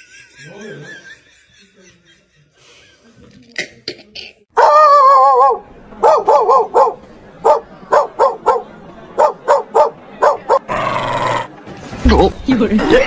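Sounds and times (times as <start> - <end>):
dog barking: 4.6 - 10.7.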